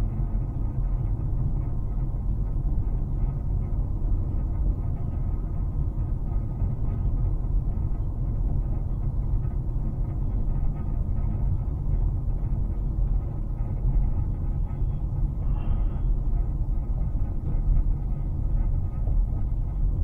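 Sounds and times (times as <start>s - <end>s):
car cabin road and engine rumble: 0.0s - 20.0s.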